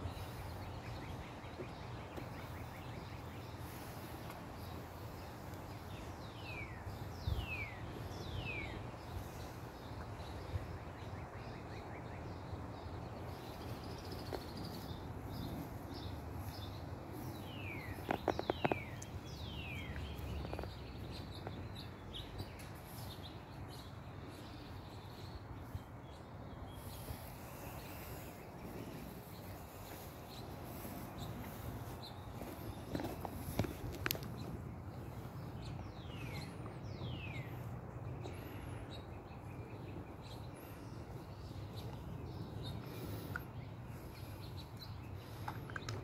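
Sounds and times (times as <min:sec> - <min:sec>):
birds chirping: 0:00.0 - 0:46.0
wind rumbling on microphone: 0:05.2 - 0:09.5.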